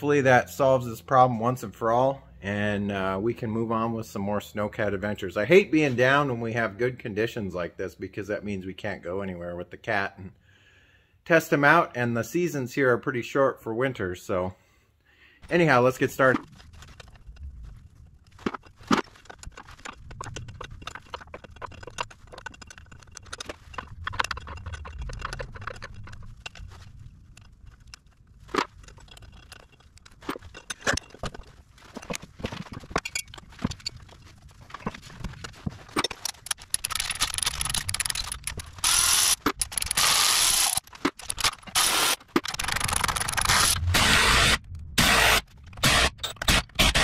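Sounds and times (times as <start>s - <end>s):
metallic clicks and knocks: 16.2s - 43.7s
cordless ratchet running: 36.5s - 47.0s.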